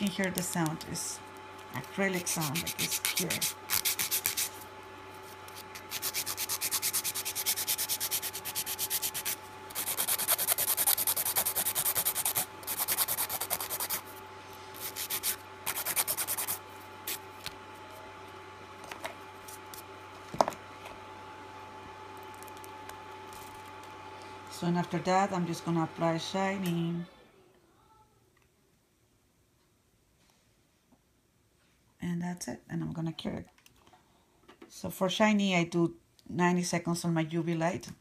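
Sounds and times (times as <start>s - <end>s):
nail file rasping: 2.3s - 4.5s, 5.8s - 14.0s, 14.8s - 17.2s.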